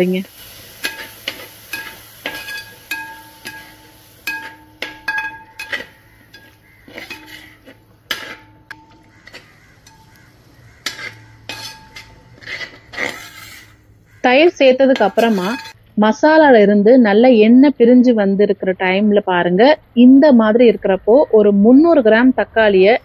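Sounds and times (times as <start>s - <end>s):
metal ladle scraping a pot: 0.7s - 15.8s.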